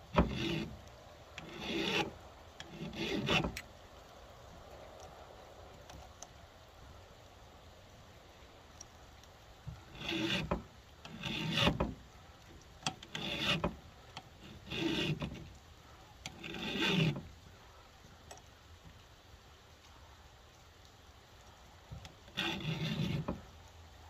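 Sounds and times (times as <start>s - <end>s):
file rasping on chainsaw chain: 0.0s - 3.6s, 9.8s - 12.0s, 12.8s - 15.5s, 16.2s - 17.3s, 22.3s - 23.4s.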